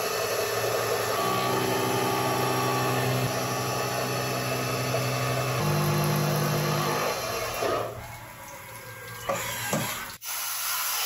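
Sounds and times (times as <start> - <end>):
milling machine motor hum: 0.0 - 9.2
coolant spray hiss: 10.2 - 11.0.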